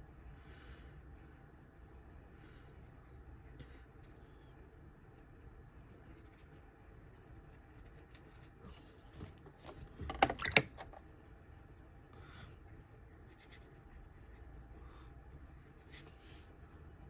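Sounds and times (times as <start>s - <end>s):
faint handling sounds: 5.9s - 14.6s.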